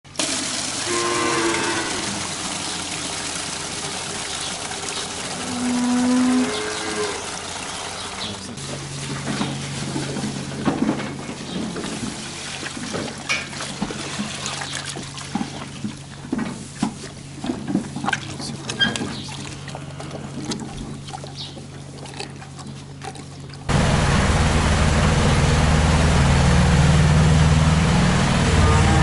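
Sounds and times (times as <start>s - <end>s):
milk pouring into metal trough: 0.1s - 8.2s
steady low hum: 6.3s - 29.0s
calves slurping: 11.2s - 23.7s.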